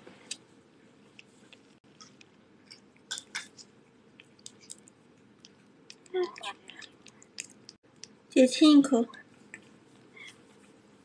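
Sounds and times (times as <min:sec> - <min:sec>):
cat licking and chewing: 0:01.0 - 0:08.3.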